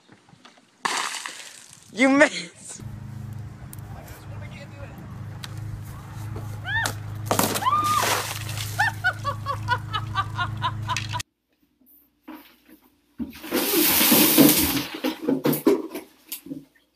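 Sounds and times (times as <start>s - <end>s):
water poured over person: 0.8s - 1.9s, 7.8s - 9.0s
water splashing from tub: 0.8s - 2.0s, 7.0s - 10.5s, 13.3s - 15.5s
low steady hum: 2.8s - 11.2s.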